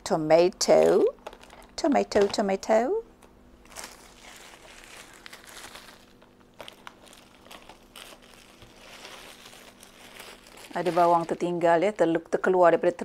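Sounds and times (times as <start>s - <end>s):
plastic bag crinkling: 0.8s - 2.4s, 3.6s - 12.0s.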